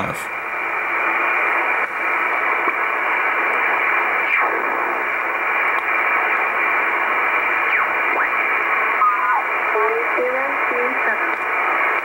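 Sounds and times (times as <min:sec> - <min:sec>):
shortwave radio noise: 0:00.0 - 0:12.0
radio whistle gliding down: 0:07.6 - 0:09.6.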